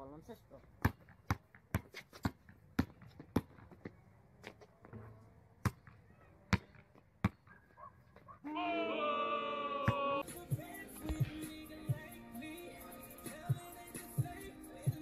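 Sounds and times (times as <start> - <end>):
basketball bouncing on asphalt: 0.6 - 8.4, 9.8 - 12.1.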